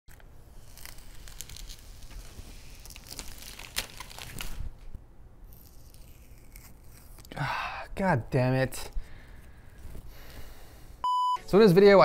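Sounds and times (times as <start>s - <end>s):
crinkling and rustling: 0.1s - 7.3s.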